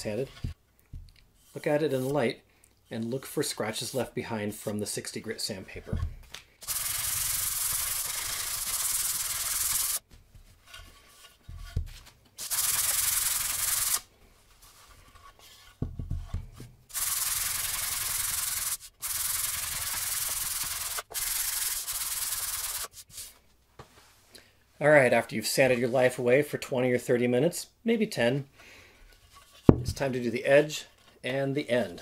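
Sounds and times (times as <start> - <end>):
sandpaper rubbing wood: 6.6 - 10.0, 12.4 - 14.1, 16.9 - 23.3
block knocking on wood: 29.7 - 30.0.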